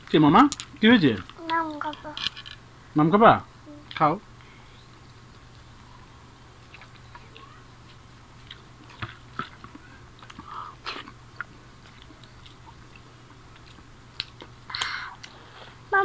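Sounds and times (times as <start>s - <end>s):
low steady hum: 0.0s - 16.0s
quiet chewing: 3.8s - 15.8s.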